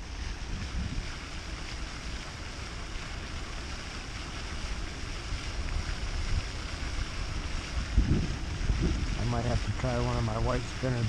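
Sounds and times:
wind buffeting microphone: 0.4s - 1.2s, 6.2s - 11.0s.

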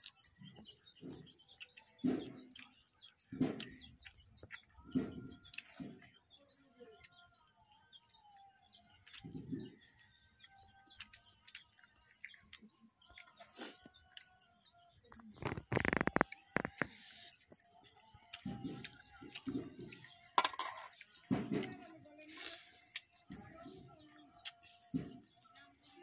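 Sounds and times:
birds chirping: 0.0s - 26.0s
hands eating off steel plates: 10.9s - 23.6s.

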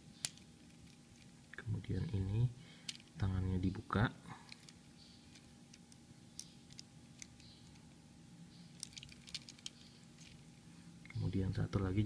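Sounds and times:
plastic toy parts clicking: 0.2s - 1.3s, 2.9s - 3.2s, 4.5s - 7.8s, 8.8s - 10.4s.

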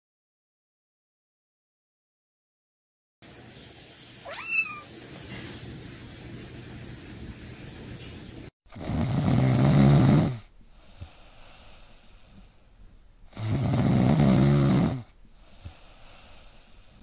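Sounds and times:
cat snoring: 8.7s - 12.5s, 13.3s - 17.0s.

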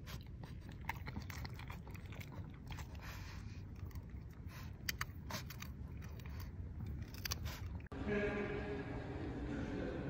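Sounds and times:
dog crunching treats: 0.5s - 7.9s.

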